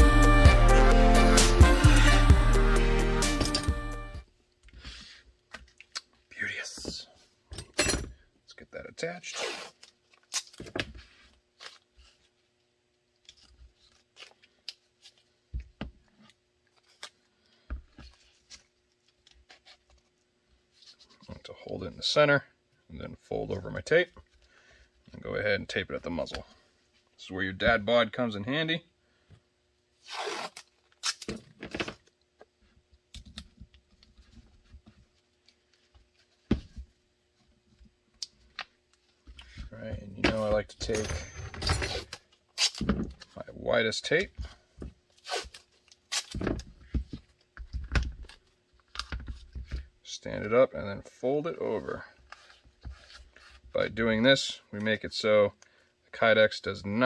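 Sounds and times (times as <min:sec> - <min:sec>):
small clicks and tape rustles: 0:13.1 - 0:21.3
tape ripping off roll: 0:30.0 - 0:32.0, 0:41.8 - 0:43.1, 0:45.2 - 0:46.6.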